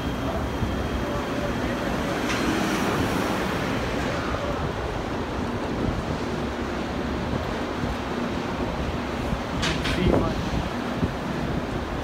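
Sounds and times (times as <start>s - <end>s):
wind buffeting microphone: 3.8s - 12.0s.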